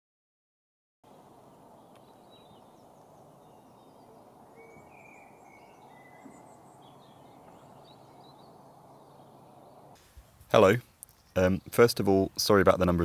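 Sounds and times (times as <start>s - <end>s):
birds chirping: 1.1s - 13.0s
short whistled bird notes: 4.0s - 8.6s.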